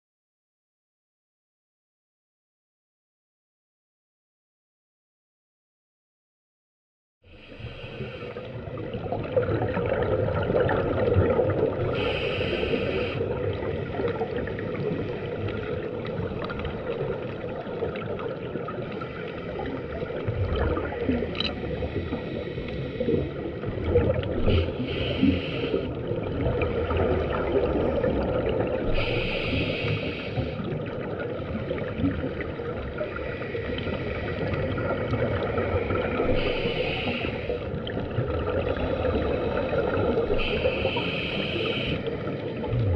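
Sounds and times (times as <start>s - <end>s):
regulator breath hissing: 7.4s - 8.6s, 12.0s - 13.2s, 24.4s - 25.9s, 28.9s - 30.7s, 36.1s - 37.7s, 39.0s - 42.4s
underwater bubbling rumble: 7.6s - 42.9s.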